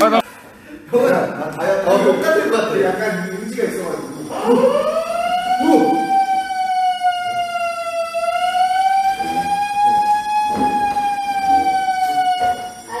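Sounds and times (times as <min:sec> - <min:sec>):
fire alarm wailing: 0:02.8 - 0:13.0.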